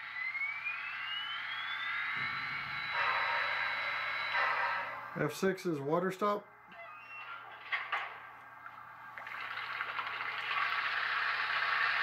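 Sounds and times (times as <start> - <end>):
water rushing into tank: 9.1 - 12.0.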